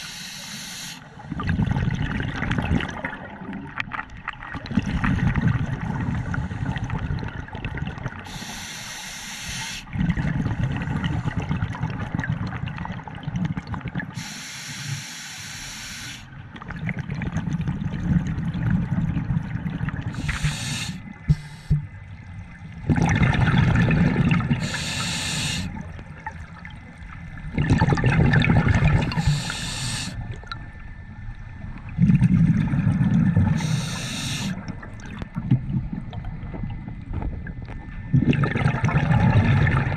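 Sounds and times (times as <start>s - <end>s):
regulator inhale hiss: 0.0s - 1.2s, 8.3s - 9.9s, 14.2s - 16.3s, 20.2s - 21.8s, 24.6s - 25.8s, 29.1s - 30.3s, 33.5s - 34.6s
exhaled bubbles rumbling: 1.2s - 8.4s, 9.9s - 14.2s, 16.4s - 39.9s.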